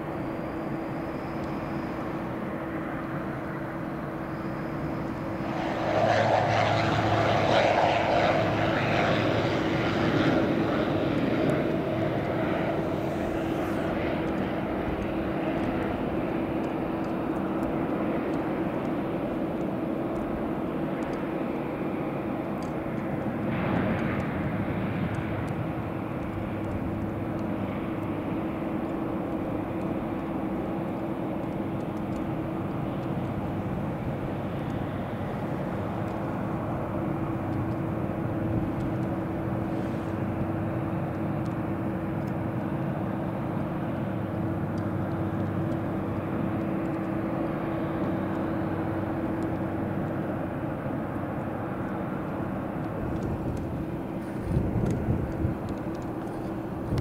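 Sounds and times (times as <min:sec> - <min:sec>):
aircraft engines droning: 0:00.0 - 0:57.0.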